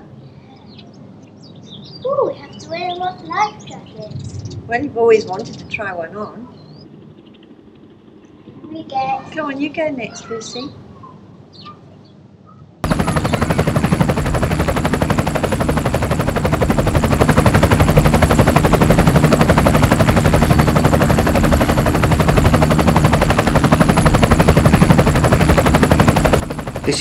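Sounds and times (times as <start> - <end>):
helicopter rotor chop: 12.8 - 27.0.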